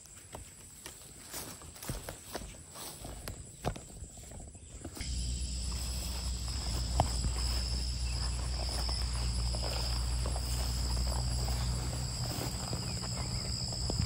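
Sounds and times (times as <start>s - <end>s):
insects chirping: 0.0s - 14.0s
low rumble: 5.0s - 14.0s.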